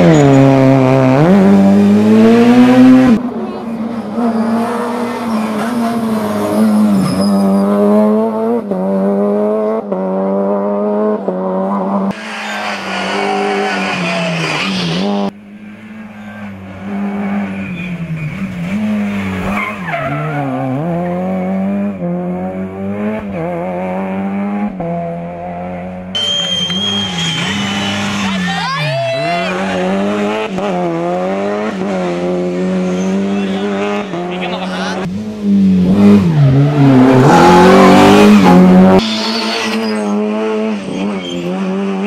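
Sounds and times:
rally car engine revving: 0.0 - 42.0
tyre squeal: 6.4 - 7.8, 16.1 - 18.5, 26.2 - 29.8, 39.0 - 41.7.

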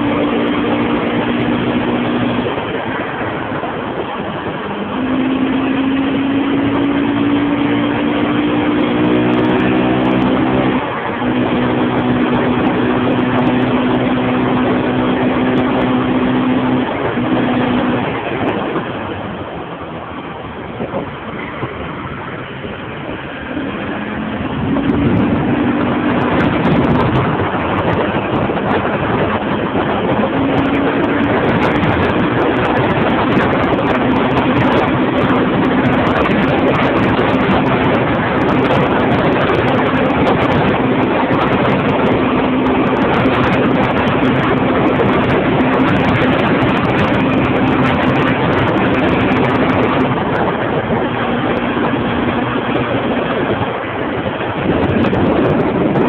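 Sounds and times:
small motorbike engine humming: 0.0 - 56.0
wind rush on microphone: 0.0 - 56.0.

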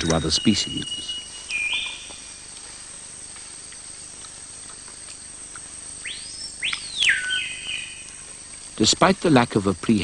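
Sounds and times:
bird call: 0.0 - 2.5, 6.0 - 8.3
faint hiss: 0.0 - 10.0
high insect drone: 0.0 - 10.0.

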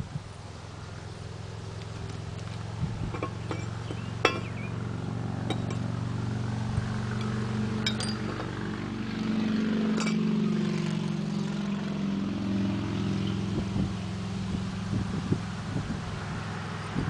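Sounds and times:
engine hum: 0.0 - 17.0
metal clinks: 3.1 - 4.8, 5.4 - 5.9, 7.1 - 8.7, 10.0 - 10.3.

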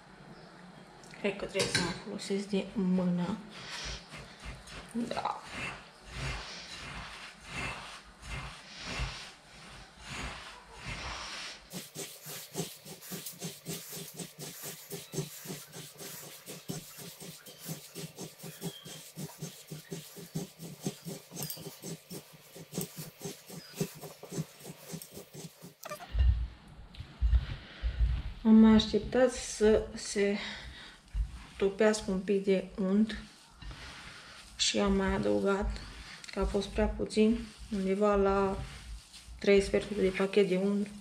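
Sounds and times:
hands squishing crumbly mixture: 3.2 - 26.0, 33.0 - 41.0.

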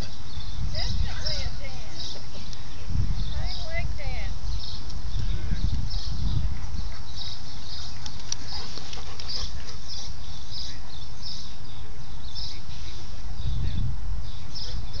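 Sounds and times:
dogs panting: 6.4 - 10.9.

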